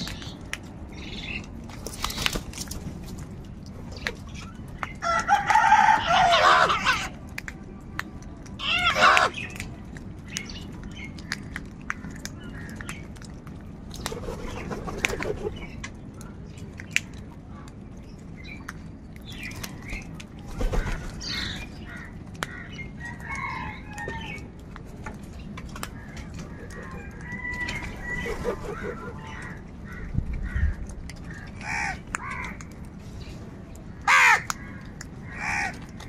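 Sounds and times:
beaks pecking on concrete: 0.0s - 36.0s
crows cawing: 28.6s - 32.6s, 34.0s - 36.0s.

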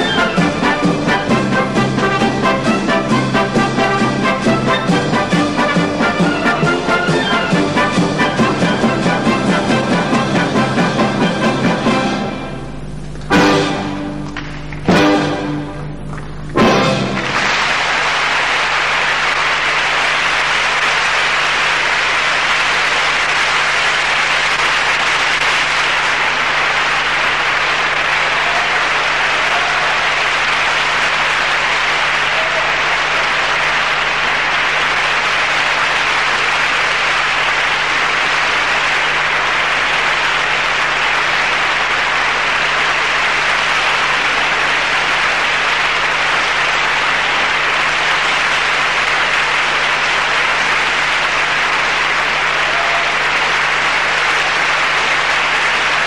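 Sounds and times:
audience applauding: 0.0s - 56.0s.

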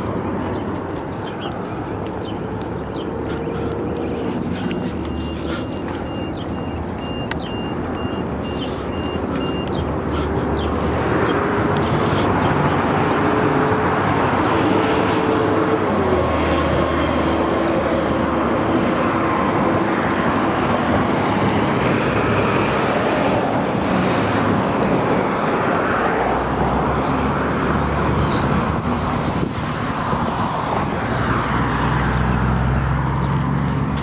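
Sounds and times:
cars moving through parking lot: 0.0s - 34.0s
low engine hum: 0.0s - 34.0s
road traffic: 0.0s - 34.0s.

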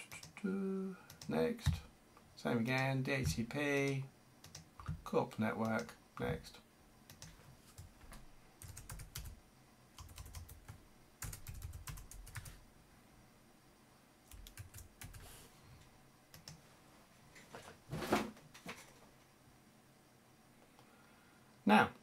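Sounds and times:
computer keyboard typing: 1.1s - 1.8s, 2.8s - 5.0s, 7.1s - 7.9s, 8.6s - 9.4s, 10.0s - 12.6s, 14.3s - 15.3s, 16.3s - 16.6s.

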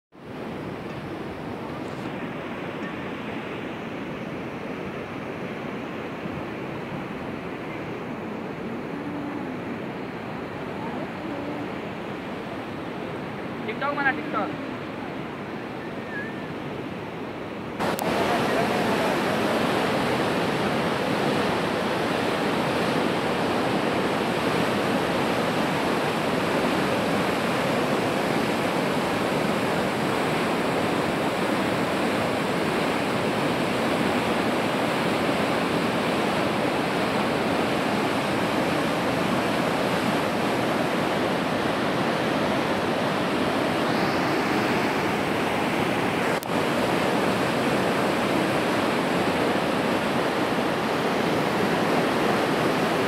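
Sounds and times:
floodwater rushing: 17.6s - 53.0s.

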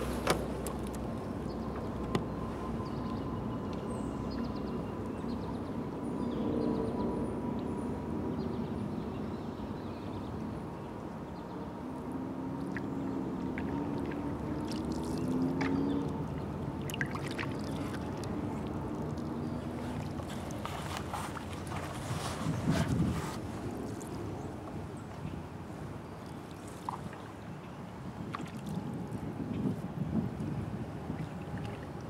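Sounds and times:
paddles swishing water: 0.0s - 2.8s, 12.5s - 32.0s.

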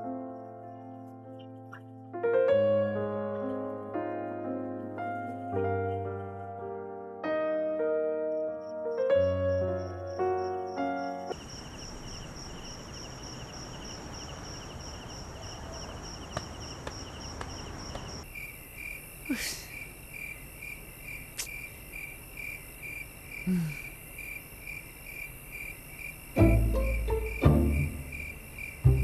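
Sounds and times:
crickets chirping: 8.2s - 29.0s
lower-pitched cricket chirp: 8.3s - 29.0s.

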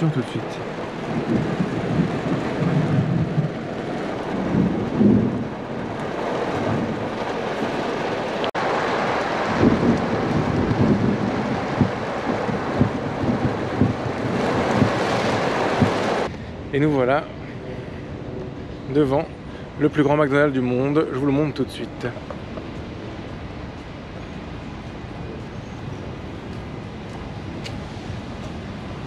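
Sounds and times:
heavy rain on car roof: 0.0s - 16.4s
thunder rumbling: 0.0s - 29.0s.

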